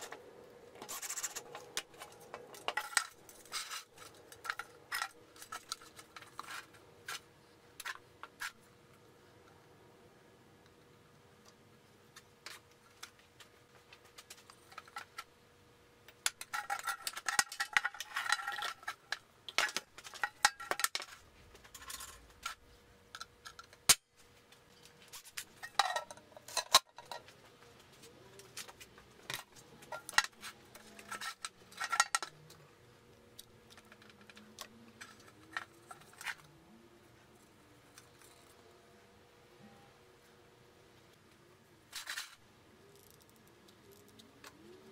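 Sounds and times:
metal can clinking and rattling: 16.3 - 22.2, 29.3 - 32.4.

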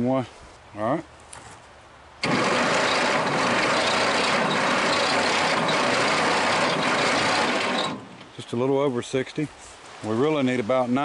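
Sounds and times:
engine cranked by starter: 2.2 - 8.3.

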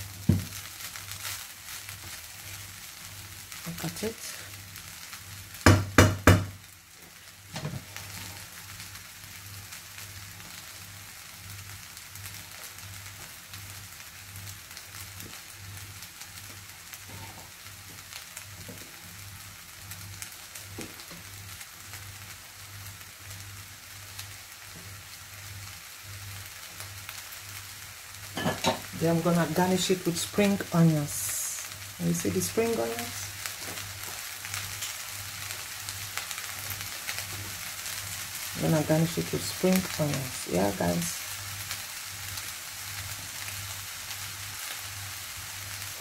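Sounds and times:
rice sizzling in a frying pan: 0.0 - 46.0
wooden spatula knock: 5.7 - 6.5.

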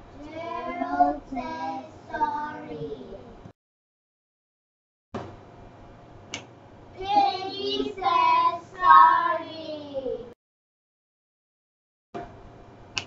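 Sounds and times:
child reading in sing-song voice: 0.2 - 3.4, 7.0 - 10.4.

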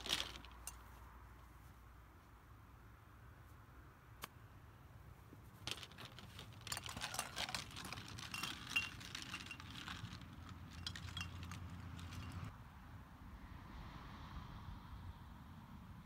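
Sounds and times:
golf clubs rattling in bag: 0.0 - 0.8, 5.6 - 12.5.

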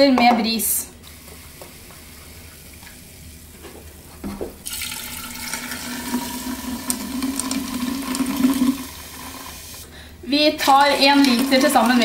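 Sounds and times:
water pouring over ice: 4.7 - 9.0.

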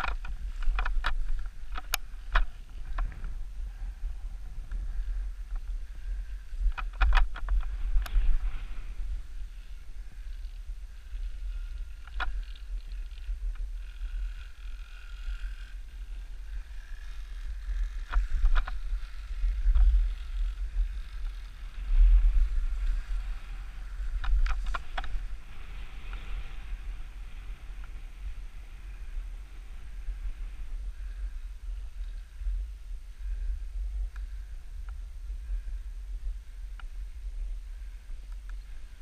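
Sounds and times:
wind buffeting microphone: 0.0 - 39.0
skis hissing through snow: 7.7 - 9.9, 25.2 - 30.7.

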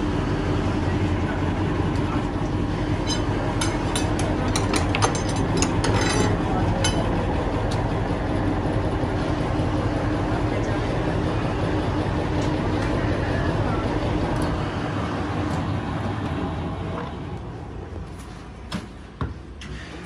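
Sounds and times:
factory machinery drone: 0.0 - 20.0
metallic clinks and knocks: 3.0 - 7.0.

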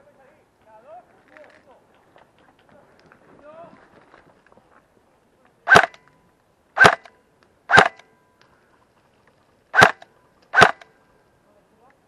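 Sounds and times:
airsoft rifle shots: 5.7 - 6.0, 6.8 - 7.1, 7.7 - 8.1, 9.7 - 10.9.

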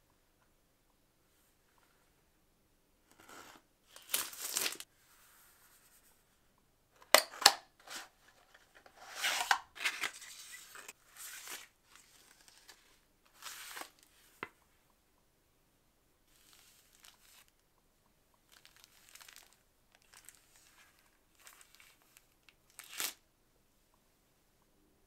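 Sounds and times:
packaging rustling and tearing: 3.9 - 4.8, 18.5 - 23.2.

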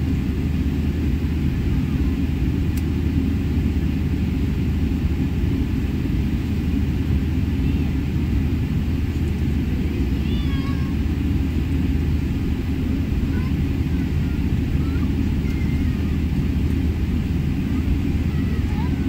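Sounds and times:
aircraft cabin rumble: 0.0 - 19.0
faint click: 2.7 - 2.9
faint high-pitched cries: 9.8 - 11.0, 13.3 - 16.3, 17.7 - 19.0.

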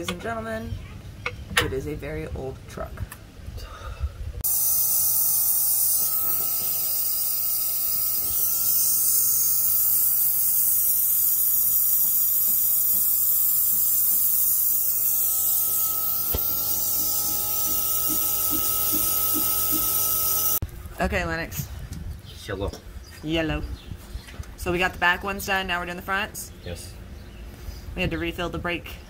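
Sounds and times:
constant whistle: 14.8 - 20.6.

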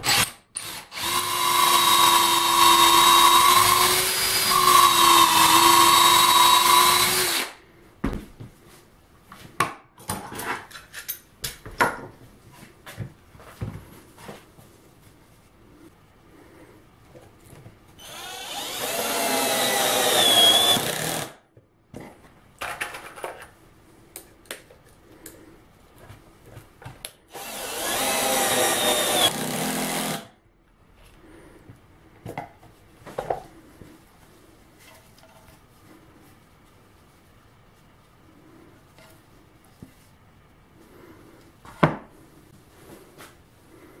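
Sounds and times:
cordless drill driving screws: 0.0 - 7.6, 18.0 - 21.4, 27.3 - 30.3.

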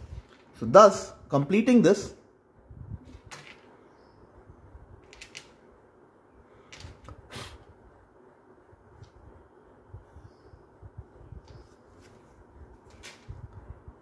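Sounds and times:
plastic ruler handling: 11.5 - 13.5.

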